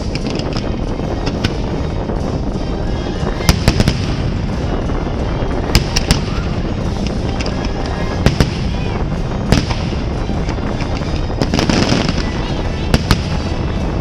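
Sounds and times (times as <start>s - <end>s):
fireworks bangs: 0.0s - 14.0s
music: 0.0s - 14.0s
rumble of fireworks launches: 0.0s - 14.0s.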